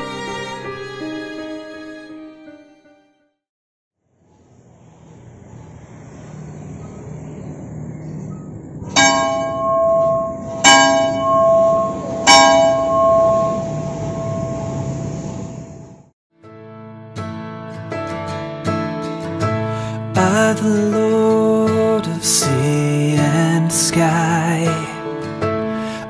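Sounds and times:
church bell striking: 8.9s - 15.5s.

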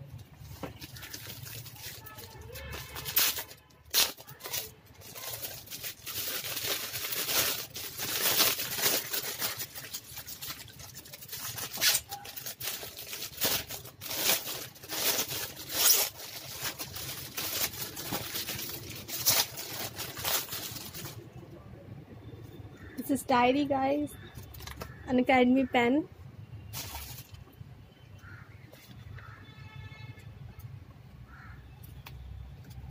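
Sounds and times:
plastic wrap crinkling: 0.3s - 21.3s, 26.7s - 27.5s.

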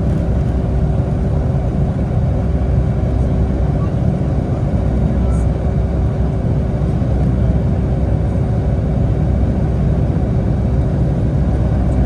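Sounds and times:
jet engine rumble in cabin: 0.0s - 12.0s.

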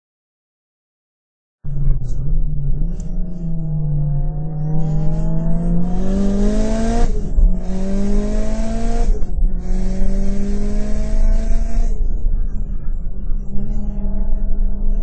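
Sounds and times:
road rumble: 1.6s - 15.0s
car engine accelerating hard: 1.9s - 15.0s.

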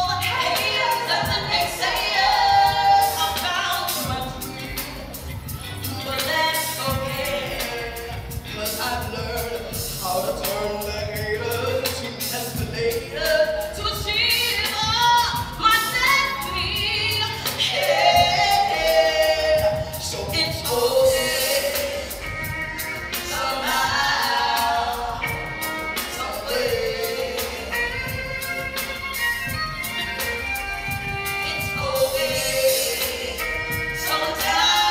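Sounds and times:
woman singing: 0.0s - 28.4s, 31.0s - 34.9s
violin: 27.7s - 32.4s.

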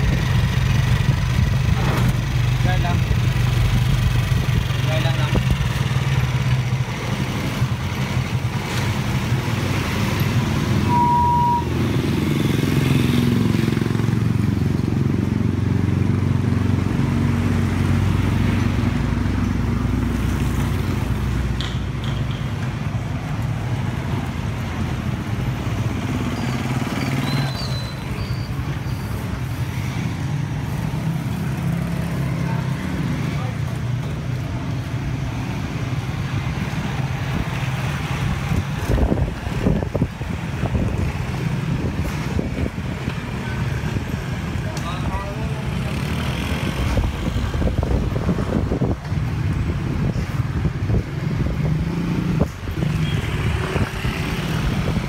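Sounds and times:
motorcycles passing: 0.0s - 55.0s
brief high beep: 10.9s - 11.7s.

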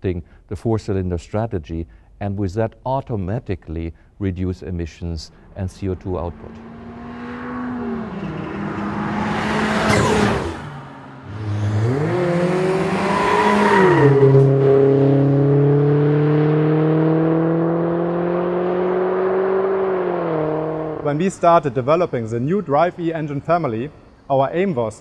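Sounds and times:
car engine accelerating past: 5.3s - 21.1s.

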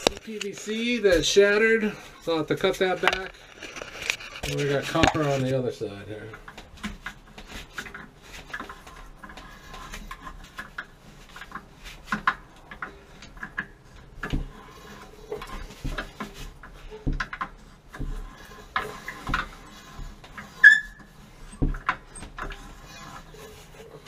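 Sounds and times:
pipe cutter scraping metal: 18.0s - 24.0s.

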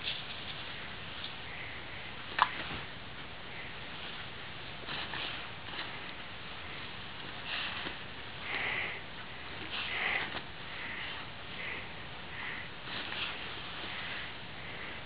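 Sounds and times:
dog sniffing: 4.8s - 14.9s.

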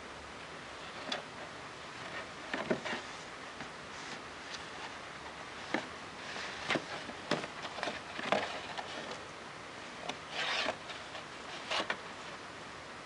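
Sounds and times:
cardboard box scraping on carpet: 10.1s - 12.0s.

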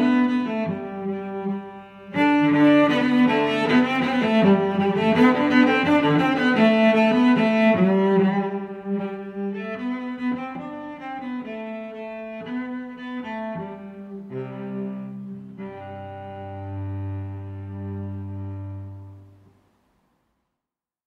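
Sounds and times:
bowed strings classical music: 0.0s - 19.6s.

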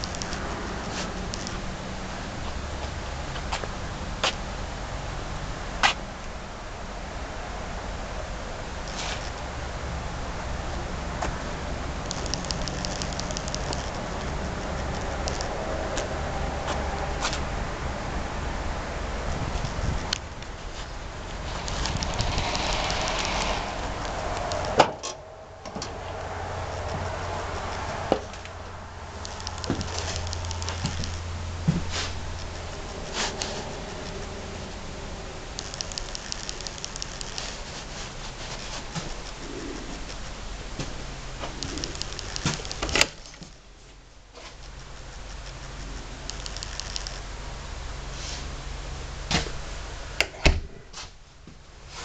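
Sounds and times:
low steady hum: 0.0s - 52.0s
footsteps on metal steps: 29.6s - 32.2s.

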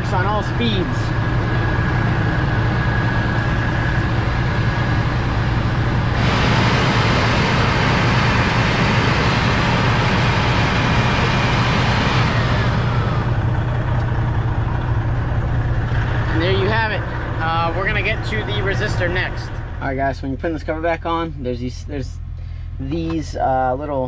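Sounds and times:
blower motor whining: 0.0s - 19.8s
steady low hum: 0.0s - 24.0s
rush of air from blower: 2.6s - 13.8s.

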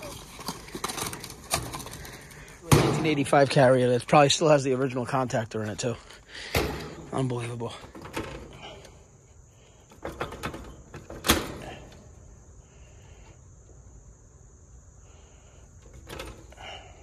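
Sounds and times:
insects chirping: 0.0s - 17.0s
clicks and knocks inside metal compartment: 9.9s - 12.0s.

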